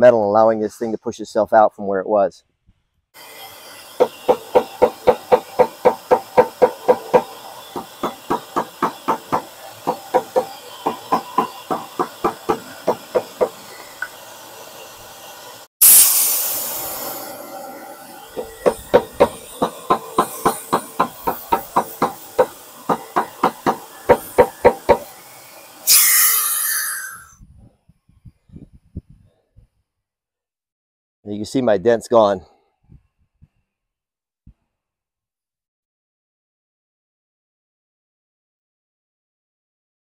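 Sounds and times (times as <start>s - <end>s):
loud air hiss: 3.2s - 27.4s.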